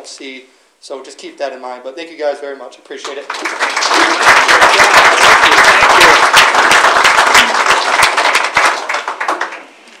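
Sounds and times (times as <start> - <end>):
audience applauding: 3.1 - 9.8.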